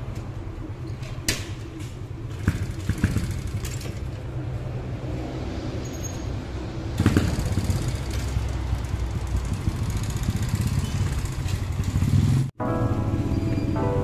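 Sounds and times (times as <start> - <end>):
motorcycle engine revving: 2.3 - 5.2, 6.9 - 12.5.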